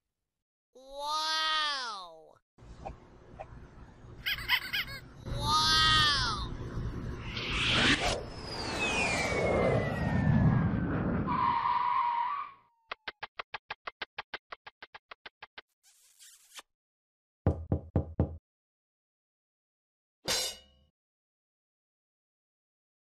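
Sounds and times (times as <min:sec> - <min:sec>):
cartoon falling whistle: 0:07.8 - 0:12.6.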